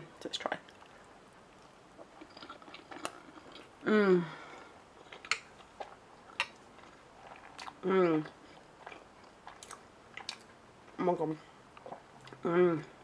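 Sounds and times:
person chewing: 0.7s - 3.8s, 4.6s - 11.0s, 11.6s - 12.5s
person humming mmm: 3.8s - 4.4s.

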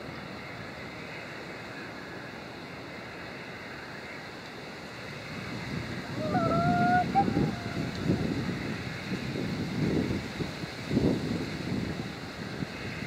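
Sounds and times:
distant steam locomotive rumble: 0.0s - 13.0s
wind on microphone: 5.2s - 13.0s.

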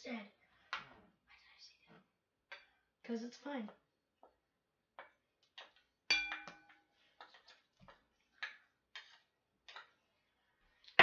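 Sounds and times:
metal spoon tapping a bowl: 6.1s - 6.8s.

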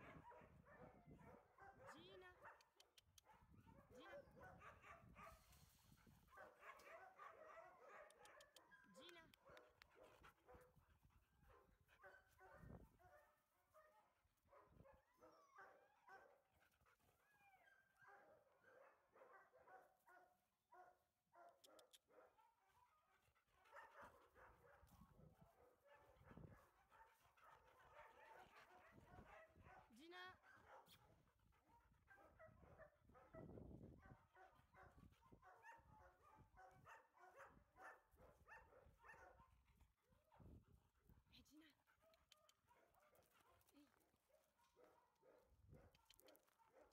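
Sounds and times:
faint dogs barking and whining: 0.0s - 46.9s.

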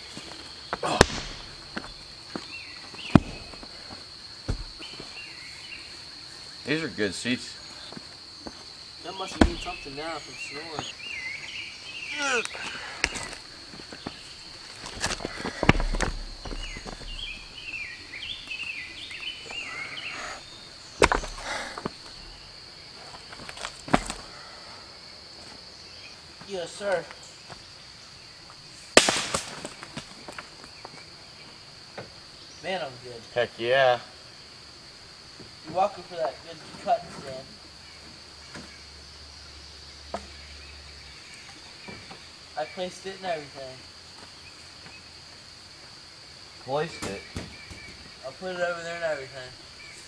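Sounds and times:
bird singing: 0.5s - 23.3s, 25.1s - 28.8s, 35.7s - 43.6s, 46.5s - 50.0s
heavy log thuds on ground: 0.8s - 2.4s, 3.0s - 3.8s, 4.4s - 5.1s, 9.3s - 10.1s, 14.8s - 17.7s, 21.0s - 22.4s, 23.4s - 24.2s, 29.0s - 30.4s, 47.0s - 48.0s
high-pitched insect drone: 1.3s - 23.1s
footsteps on leaves and stones: 13.0s - 17.7s, 23.1s - 24.2s.

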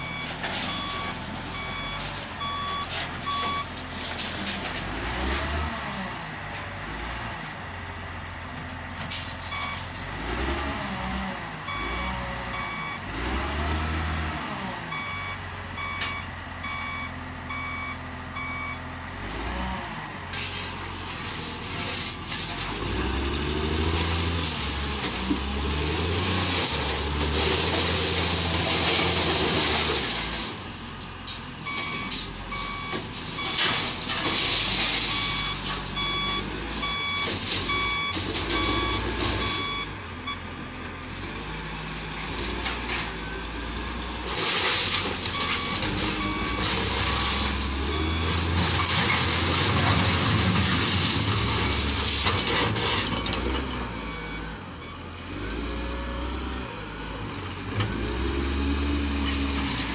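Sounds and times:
reversing alarm beeping: 0.0s - 3.7s, 9.5s - 9.8s, 11.7s - 13.0s, 14.9s - 18.8s, 31.7s - 34.2s, 34.8s - 40.4s, 45.3s - 49.3s, 53.2s - 55.1s
loader working rubble: 0.0s - 59.9s
wheel loader diesel engine: 0.0s - 59.9s.

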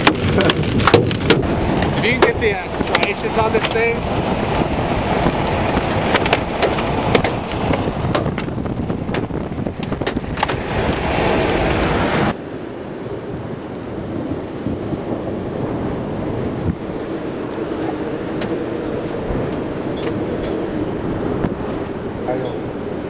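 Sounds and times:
sharp clicks and pops: 0.0s - 3.8s, 5.2s - 11.1s
strong wind buffeting microphone: 0.0s - 23.0s.

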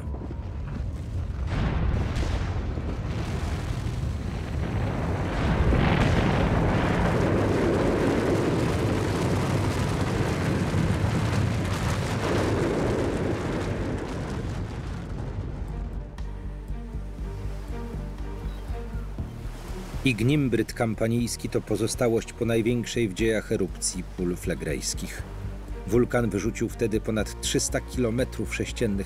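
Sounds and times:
volcanic eruption rumble: 0.0s - 16.1s.

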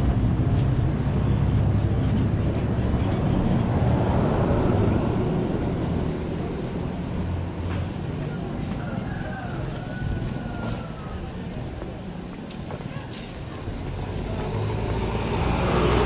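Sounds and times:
street traffic rumble: 0.0s - 16.0s
car driving past: 13.9s - 16.0s.

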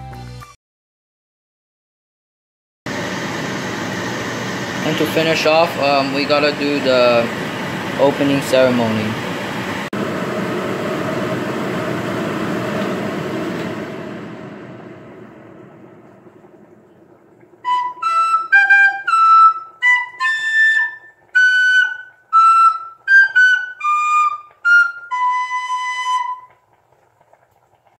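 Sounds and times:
flute-like melody: 17.6s - 26.7s.

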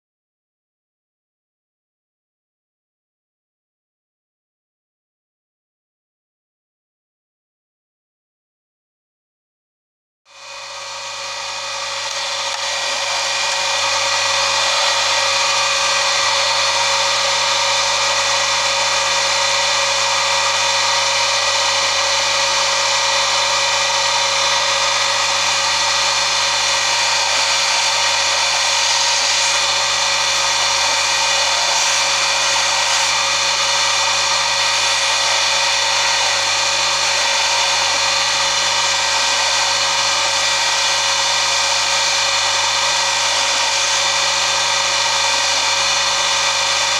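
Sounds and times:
polishing motor whining: 10.3s - 46.9s
polishing wheel rushing on metal: 10.6s - 46.9s.

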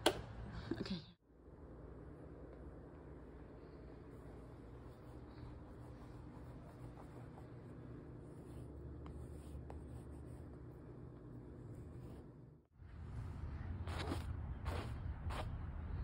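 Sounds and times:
low steady hum: 0.0s - 16.0s
charcoal scratching on paper: 4.1s - 10.8s.

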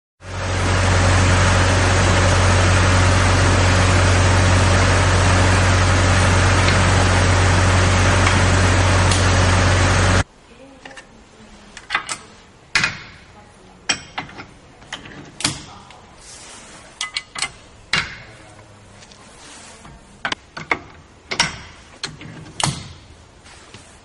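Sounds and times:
loader engine running: 0.2s - 10.3s.

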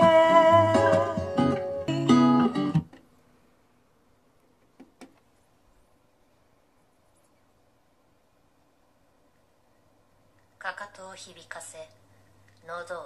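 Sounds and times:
acoustic guitar strumming: 0.0s - 3.0s.

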